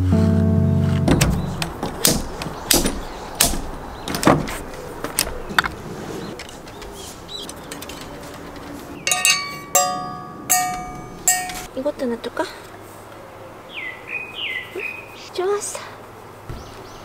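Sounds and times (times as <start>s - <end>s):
metal hooks clicking and knocking: 7.4s - 11.7s
metal utensils clinking: 7.8s - 11.7s.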